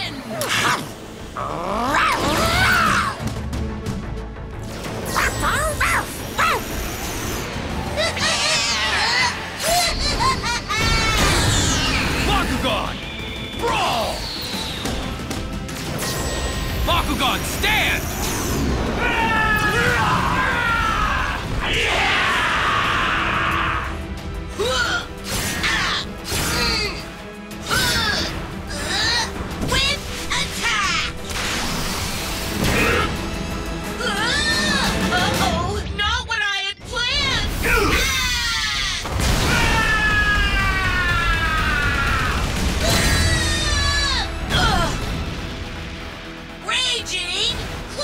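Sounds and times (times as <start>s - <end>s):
background music: 0.0s - 48.0s
screeching creature cries: 8.0s - 9.7s.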